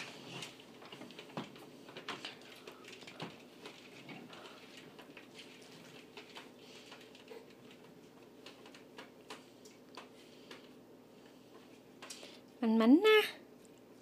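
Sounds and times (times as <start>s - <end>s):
baby walker shifting on wooden floor: 0.0s - 9.1s
baby handling plastic toys: 0.0s - 12.4s.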